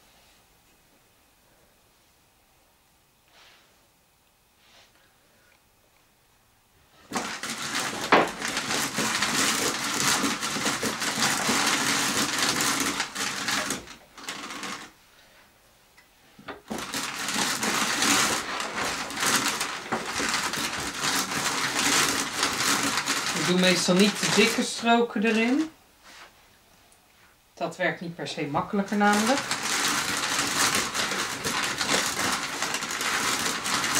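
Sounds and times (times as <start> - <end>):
hand-cranked drum carder whirring: 7.1 - 14.9, 16.5 - 25.7, 28.8 - 33.9.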